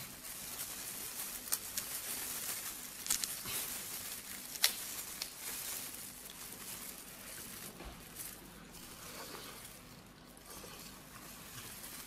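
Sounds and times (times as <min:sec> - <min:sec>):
plastic gloves crinkling: 0:00.0 - 0:12.0
crayfish shell cracking: 0:01.2 - 0:06.5.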